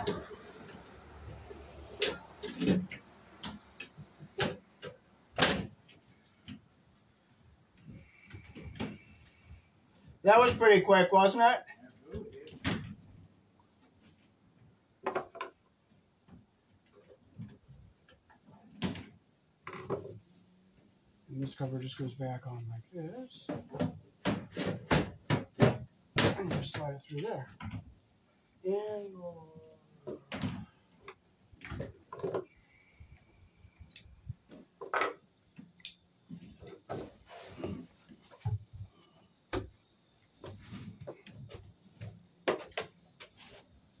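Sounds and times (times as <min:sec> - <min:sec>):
soft steps on wooden deck: 0:40.4 - 0:43.8.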